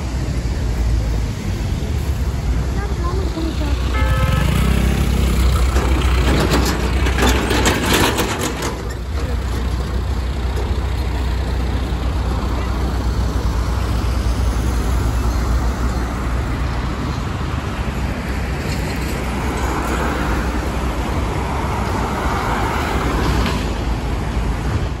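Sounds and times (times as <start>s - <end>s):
traffic rumble: 0.0s - 25.0s
vehicle driving close by: 3.4s - 8.6s.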